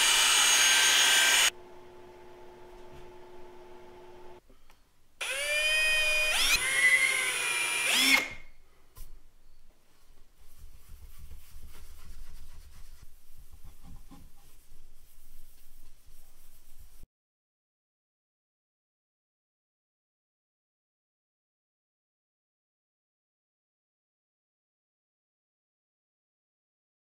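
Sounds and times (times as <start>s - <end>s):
cordless drill spinning: 0.0s - 1.5s, 5.2s - 8.5s
rag rubbing on board: 10.7s - 17.0s.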